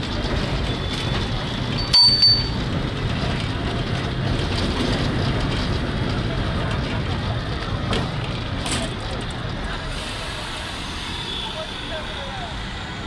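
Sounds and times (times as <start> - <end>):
tram rumbling: 0.0 - 13.0
bell ringing: 1.8 - 2.6.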